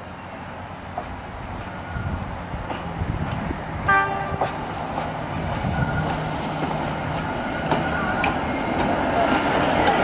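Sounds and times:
steam locomotive rumbling: 0.0 - 10.0
train whistle toot: 3.9 - 4.6.

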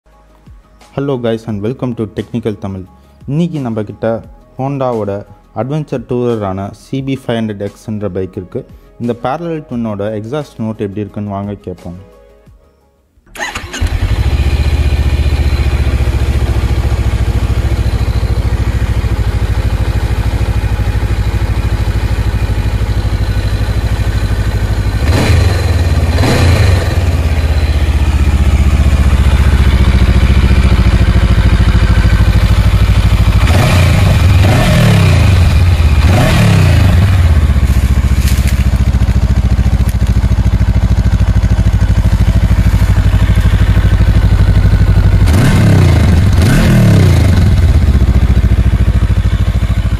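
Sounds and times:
engine throttle blips: 13.3 - 49.9
motorcycle engine idling: 13.4 - 49.9.

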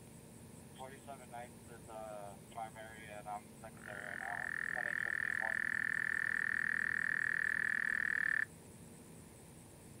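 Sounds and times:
frog trilling: 3.6 - 8.5.

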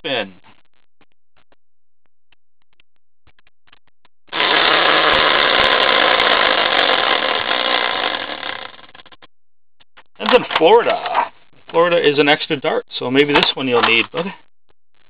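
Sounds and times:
prize wheel rattling as it spins: 4.3 - 9.0.

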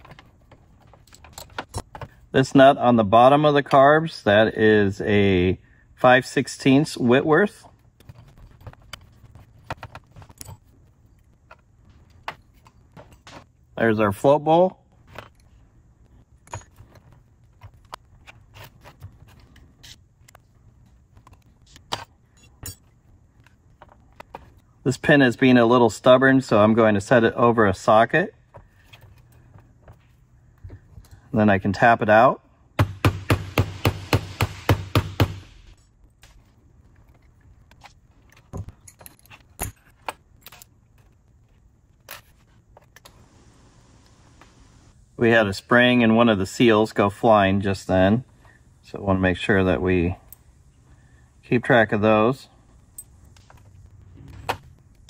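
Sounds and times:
metal parts clicking and knocking: 0.0 - 2.2, 8.0 - 13.5, 37.0 - 41.2
small metal parts clinking: 0.7 - 2.0, 38.2 - 41.1.

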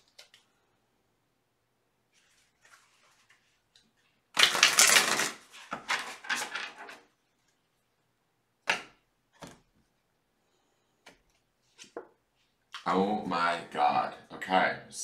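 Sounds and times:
cards being shuffled: 4.4 - 7.1.

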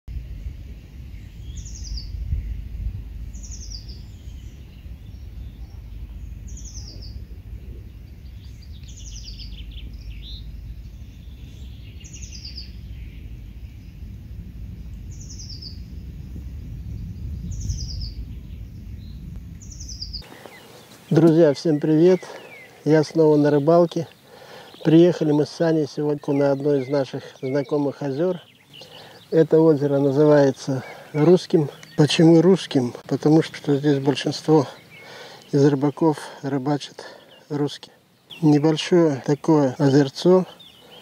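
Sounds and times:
wind rumble on microphone: 0.1 - 35.3
faint bird calls: 1.1 - 14.1, 17.0 - 41.0
songbird trilled phrase: 3.4 - 14.0, 19.6 - 41.0.

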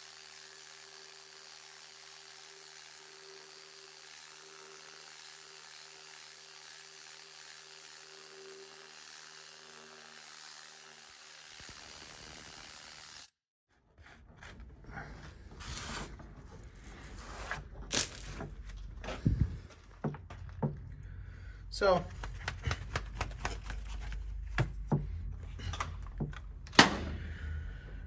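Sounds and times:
irregular knocks and clatter: 17.7 - 21.2, 22.0 - 26.8.

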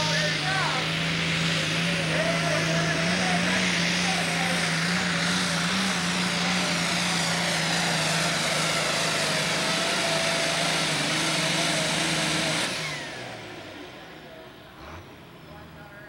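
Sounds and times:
tractor diesel engine running under load: 0.0 - 16.0.

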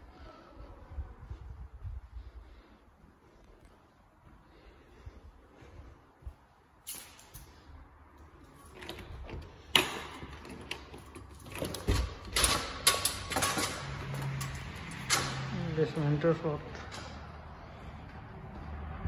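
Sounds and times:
window blinds clicking and rattling: 8.7 - 15.6.

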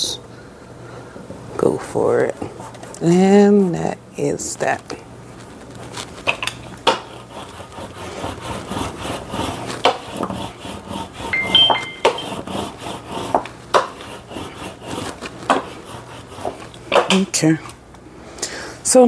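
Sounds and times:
rubber roller rubbing on sticker sheet: 5.4 - 11.5, 12.2 - 16.7
high squeak: 11.3 - 12.4.

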